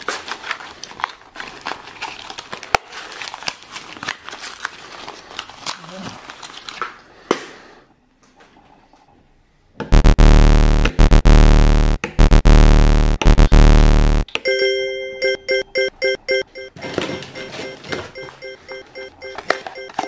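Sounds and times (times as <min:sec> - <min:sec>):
cardboard packaging crinkling: 0:00.0 - 0:06.9
loud electronic music: 0:09.9 - 0:14.2.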